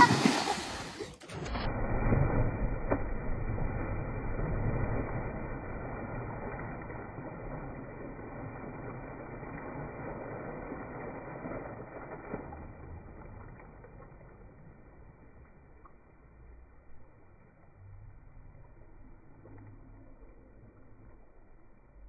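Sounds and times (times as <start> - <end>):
person swimming: 0.0 - 11.4
water splashing from a dive: 0.0 - 15.1.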